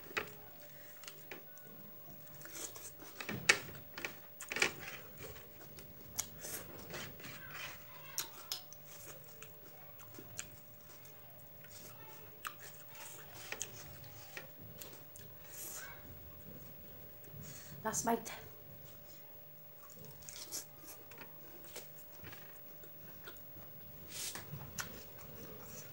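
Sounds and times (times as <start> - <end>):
person chewing: 4.4 - 15.7, 19.8 - 25.9.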